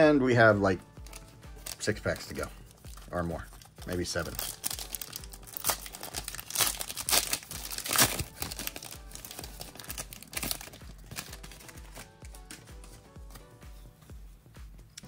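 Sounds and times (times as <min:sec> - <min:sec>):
foil wrapper crinkling: 0:01.0 - 0:12.6.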